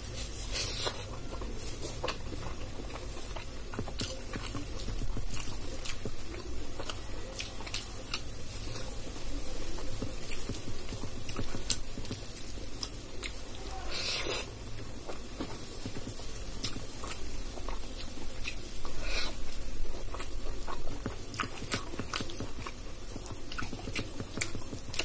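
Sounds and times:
chewing: 0.0s - 25.0s
fingers squishing rice: 0.0s - 25.0s.

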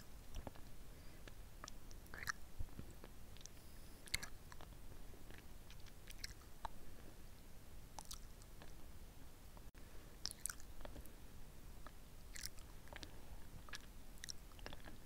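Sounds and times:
lollipop sucking and licking: 10.3s - 10.9s.

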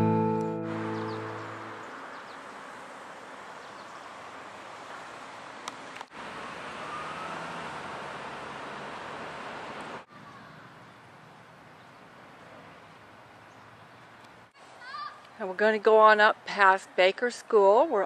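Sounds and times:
acoustic guitar music: 0.0s - 1.9s
distant road traffic: 0.0s - 18.0s.

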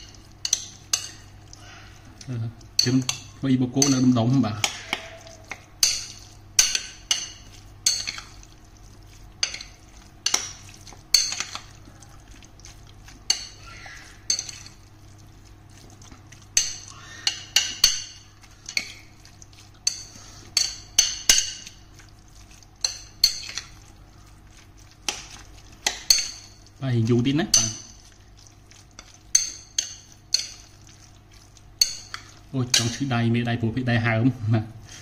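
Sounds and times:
metal spoon stirring in bowl: 0.0s - 33.5s
spoon clinking against bowl: 2.8s - 8.4s, 13.3s - 14.8s, 25.1s - 26.7s, 27.5s - 28.1s, 29.0s - 30.7s, 31.8s - 33.1s.

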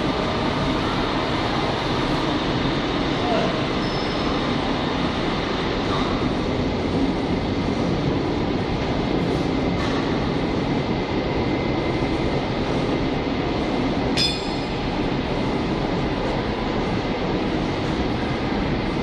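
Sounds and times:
metallic ping: 14.2s - 14.8s.

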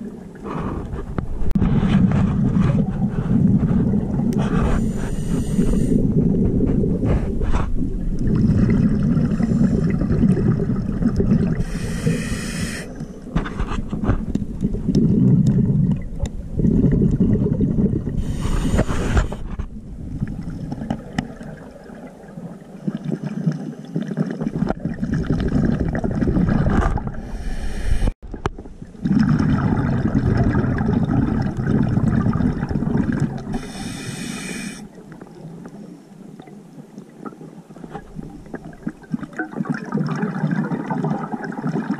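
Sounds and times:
bubbling exhalations underwater: 1.6s - 12.8s, 14.6s - 27.3s, 29.0s - 34.9s, 38.2s - 41.9s
hissing regulator inhalations: 4.6s - 6.1s, 11.6s - 13.1s, 18.2s - 19.5s, 27.2s - 28.2s, 33.5s - 34.9s.

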